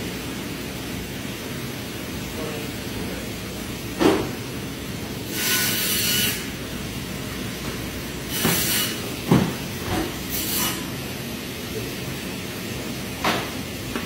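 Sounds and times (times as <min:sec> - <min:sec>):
knife scraping through meat: 0:05.3 - 0:06.4.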